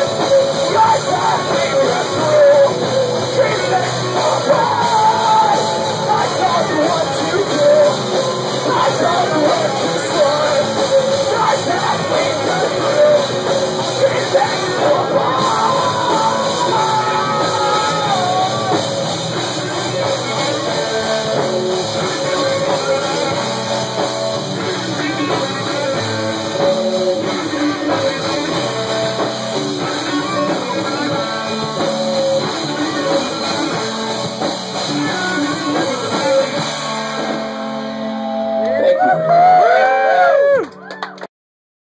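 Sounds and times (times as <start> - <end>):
person singing: 0.0 - 40.8
drum kit: 0.0 - 40.9
electric guitar: 0.0 - 41.3.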